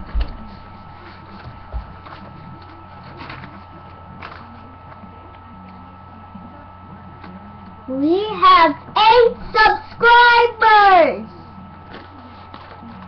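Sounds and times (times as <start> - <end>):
steady hum: 0.0 - 13.0
paper rustling: 11.9 - 13.0.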